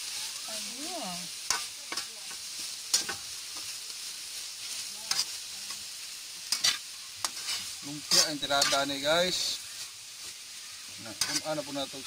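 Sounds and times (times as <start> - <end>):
food sizzling in a wok: 0.0 - 12.0.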